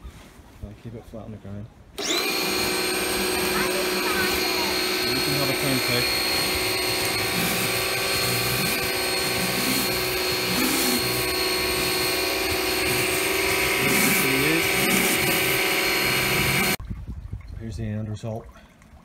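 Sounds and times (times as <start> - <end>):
pressure washer motor whine: 2.0 - 16.8
water jet hissing: 2.0 - 16.8.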